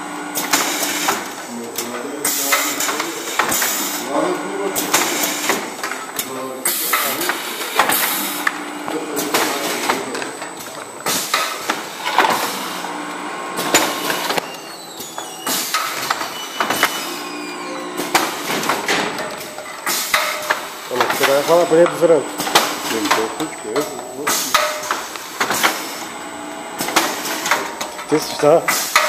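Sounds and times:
packing machine clicks and knocks: 18.1s - 25.9s.

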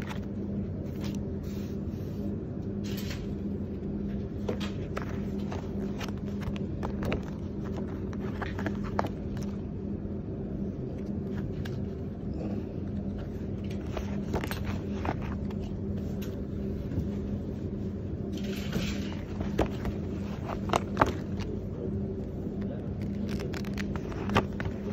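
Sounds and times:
steady low hum: 0.0s - 24.9s
paper and fabric rustling: 4.0s - 9.6s, 13.1s - 24.9s.

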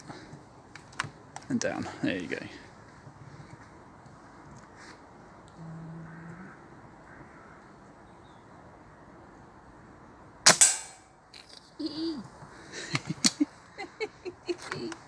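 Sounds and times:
air rifle shot: 10.5s - 11.1s.

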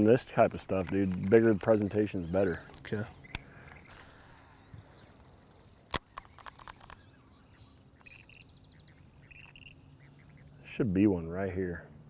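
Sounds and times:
sharp clicks: 0.6s - 5.0s, 5.9s - 7.2s
faint bird chirps: 6.0s - 10.7s.

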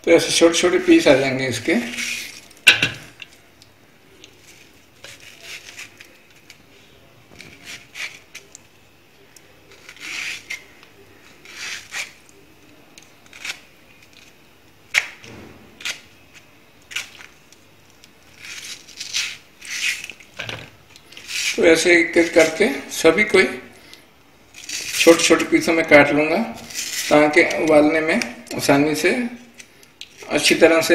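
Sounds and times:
knife slicing fruit: 4.3s - 6.6s, 7.3s - 8.6s, 9.6s - 12.4s.

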